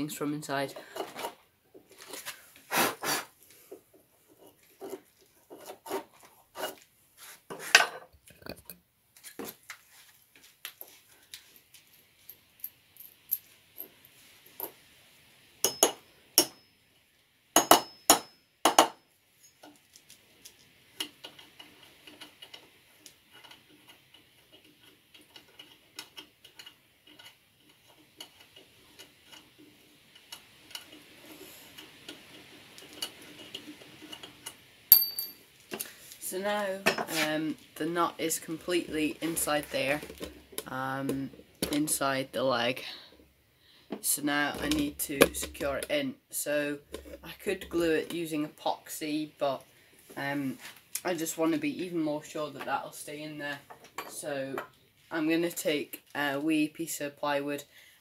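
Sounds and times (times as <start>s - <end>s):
metal tool scraping in wood: 4.3s - 8.0s.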